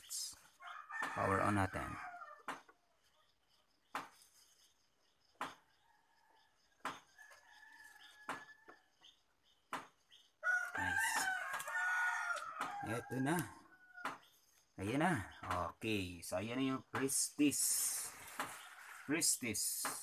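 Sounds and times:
rooster crowing: 0:00.6 - 0:02.6, 0:05.8 - 0:08.9, 0:10.4 - 0:14.2.

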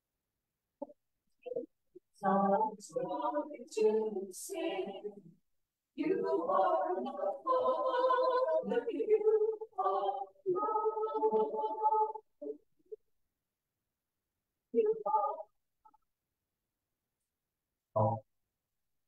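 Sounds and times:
mixed choir singing: 0:02.2 - 0:05.2, 0:06.0 - 0:12.2.

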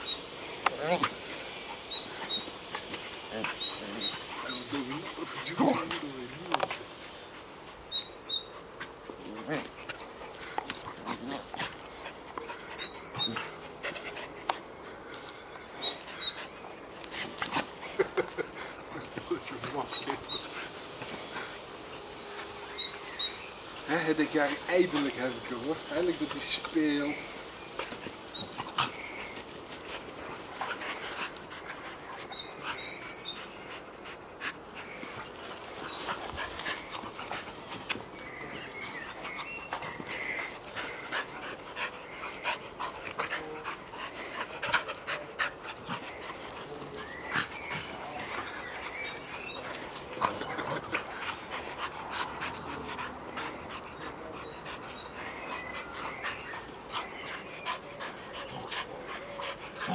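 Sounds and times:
dogs panting: 0:00.0 - 0:59.9
dogs vocalizing: 0:00.8 - 0:59.9
dogs scuffling: 0:34.4 - 0:59.9.

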